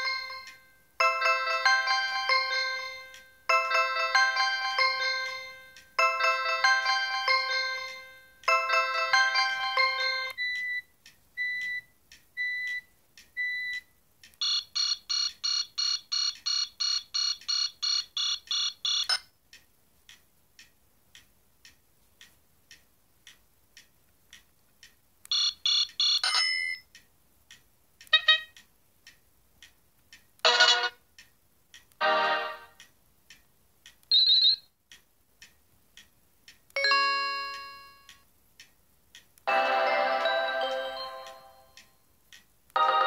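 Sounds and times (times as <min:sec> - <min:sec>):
phone alert melody: 0:00.0 - 0:10.8, 0:32.0 - 0:32.8, 0:36.8 - 0:38.1, 0:39.5 - 0:41.8, 0:42.8 - 0:43.0
faint regular ticks: 0:16.2 - 0:26.2, 0:26.8 - 0:30.4, 0:31.1 - 0:32.0, 0:32.8 - 0:34.1, 0:34.9 - 0:36.8, 0:38.0 - 0:39.5, 0:41.7 - 0:42.7.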